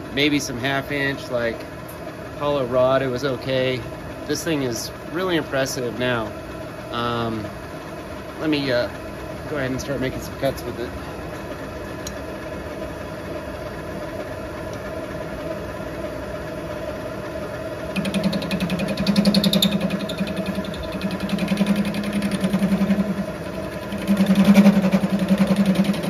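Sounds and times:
lathe running: 0.0s - 26.0s
fast-pulsing cutting chatter: 17.9s - 26.0s
high squeal: 18.0s - 23.2s.

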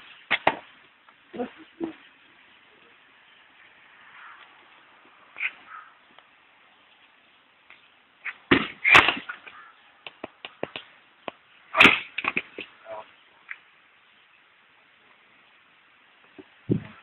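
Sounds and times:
axe chopping firewood: 8.5s - 9.4s, 11.7s - 12.6s.

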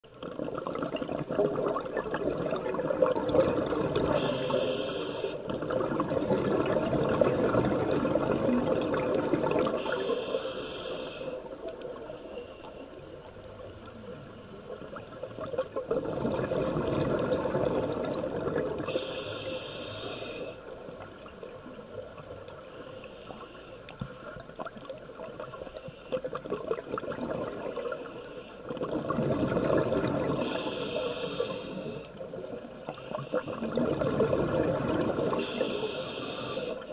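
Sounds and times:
exhaled bubbles rushing: 0.1s - 4.2s, 5.4s - 9.8s, 14.7s - 18.9s, 26.2s - 28.0s, 28.6s - 30.5s, 33.3s - 35.5s
regulator inhalation hisses: 4.1s - 5.4s, 9.8s - 11.5s, 18.9s - 20.6s, 30.4s - 32.2s, 35.3s - 36.9s.

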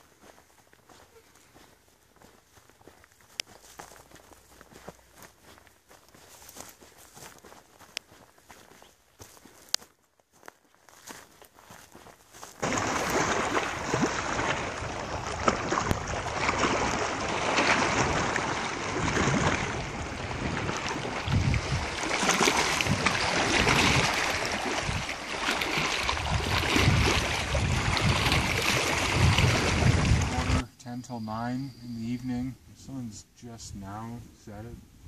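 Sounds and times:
waves lapping at the shore: 12.6s - 30.6s
wind gusting on microphone: 13.3s - 30.7s.

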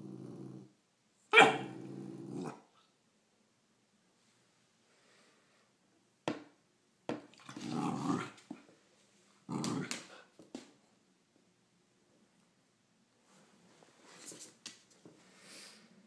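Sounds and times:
puppy growling: 0.0s - 0.7s, 1.4s - 2.7s, 7.4s - 8.5s, 9.5s - 10.2s
puppy yapping: 1.3s - 1.7s.

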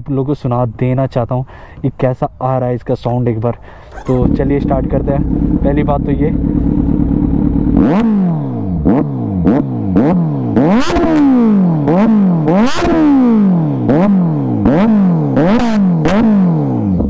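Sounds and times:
motorcycle engine revving: 3.4s - 17.0s.

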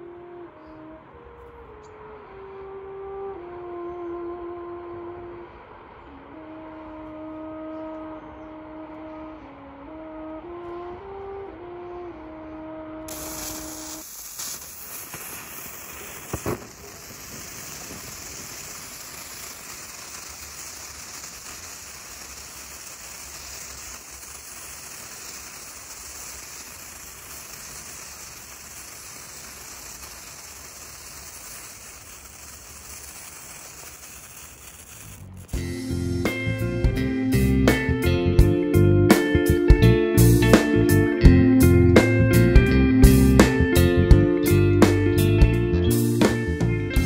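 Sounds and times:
snake firework fizzing hiss: 13.1s - 36.8s
sharp crack: 13.1s - 36.9s.

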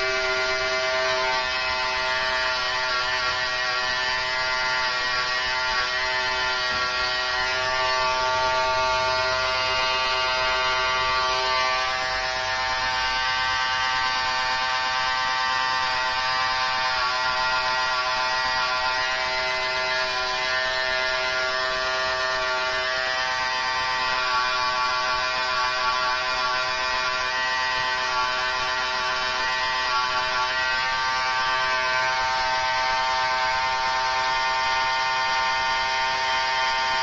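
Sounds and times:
electric hair clipper buzzing: 0.0s - 37.0s.

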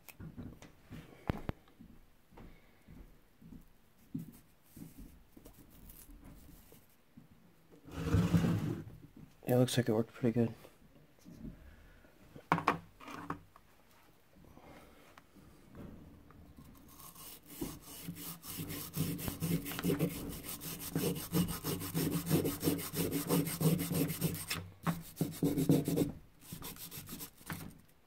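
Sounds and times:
brush scrubbing metal: 16.8s - 27.7s.

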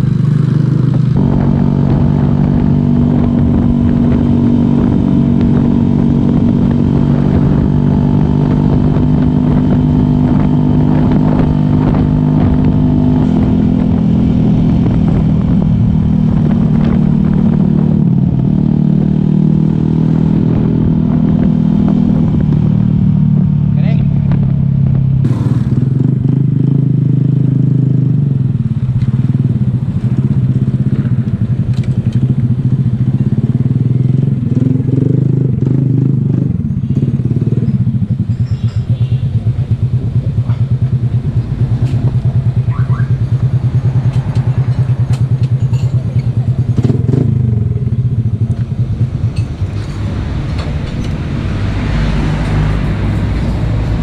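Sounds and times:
broad rushing noise: 48.2s - 54.0s.

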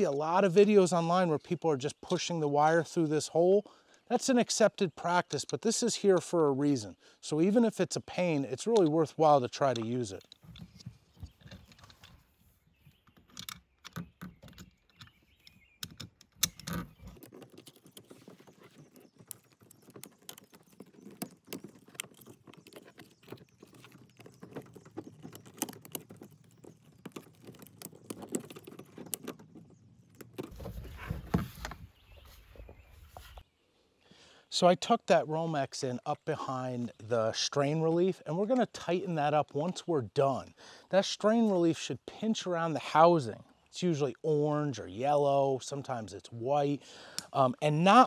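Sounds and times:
cable scraping plastic housing: 12.9s - 32.0s.

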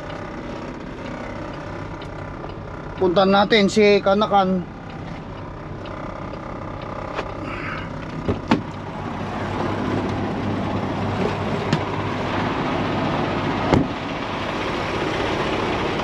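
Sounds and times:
idling truck hum: 0.0s - 16.0s
rush of outside noise: 6.6s - 16.0s
sharp knocks: 8.2s - 8.8s, 13.7s - 14.0s.

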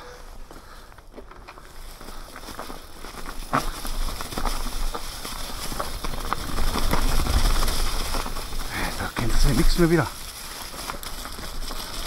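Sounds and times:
bike rattling over bumps: 0.0s - 12.0s
tyres crackling through dry leaves: 0.0s - 12.0s.

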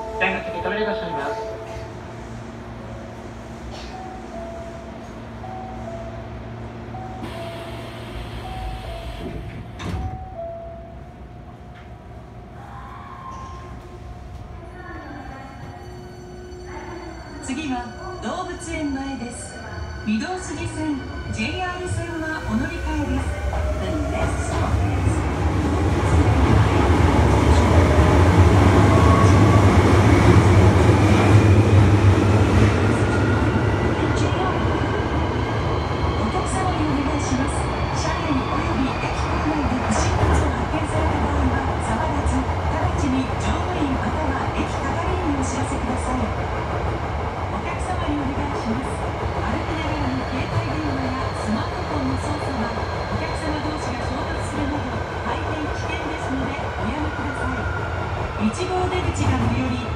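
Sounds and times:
stopped train humming: 0.0s - 59.9s
train doors closing with a knock: 7.2s - 10.4s.

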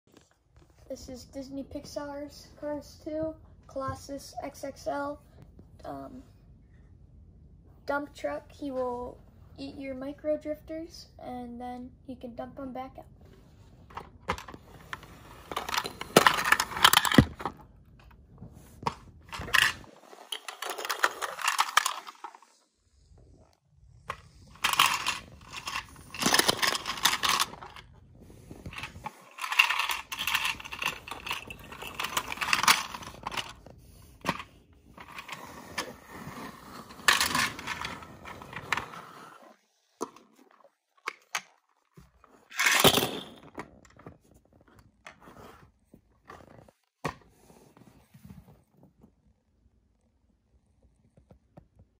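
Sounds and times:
toy cars rattling in plastic truck: 14.4s - 17.4s, 19.3s - 22.6s, 24.4s - 27.8s, 28.7s - 33.6s, 36.8s - 39.0s, 42.5s - 43.5s
toy cars clattering onto floor: 19.3s - 22.5s, 24.6s - 27.9s, 28.7s - 33.6s, 36.9s - 38.9s, 42.5s - 43.9s.

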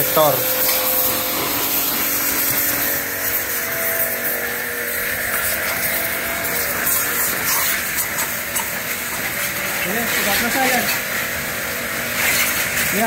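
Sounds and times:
pressure washer motor humming: 0.0s - 13.0s
water jet hissing: 0.0s - 13.0s.

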